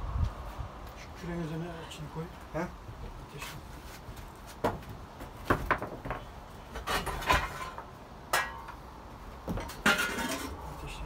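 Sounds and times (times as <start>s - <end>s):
metal clanking and clinking: 6.7s - 8.8s, 9.5s - 10.6s.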